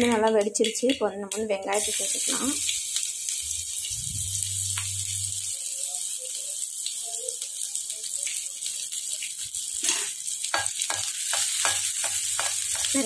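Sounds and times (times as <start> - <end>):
onions sizzling in hot oil: 0.0 - 13.0
low hum: 3.9 - 5.3.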